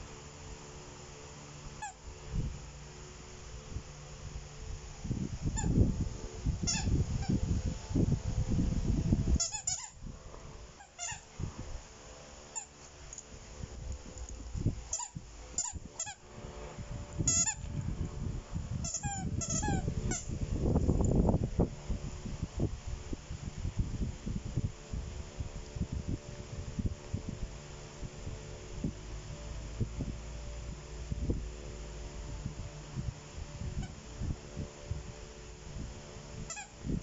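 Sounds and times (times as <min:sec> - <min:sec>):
rubber squeaky toy squeaking: 0:06.6 - 0:07.3, 0:09.4 - 0:10.0, 0:10.8 - 0:11.3, 0:14.9 - 0:16.2, 0:17.3 - 0:17.6, 0:18.8 - 0:20.2, 0:36.5 - 0:36.7.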